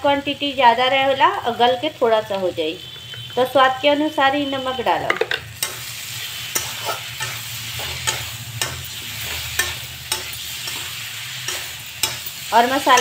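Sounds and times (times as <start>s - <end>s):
food sizzling in oil: 0.0s - 13.0s
metal spatula scraping pan: 5.6s - 13.0s.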